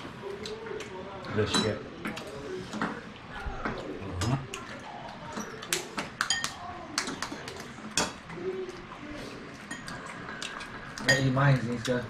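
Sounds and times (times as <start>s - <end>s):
cutlery and dishes clinking: 1.3s - 3.0s, 3.6s - 8.2s, 9.5s - 12.0s.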